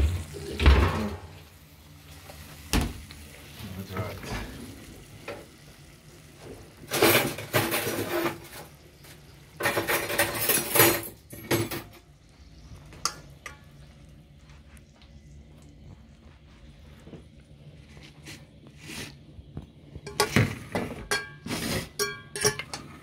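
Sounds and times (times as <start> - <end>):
metal pot and lid clattering: 6.9 - 8.8, 9.5 - 12.0, 20.0 - 23.0.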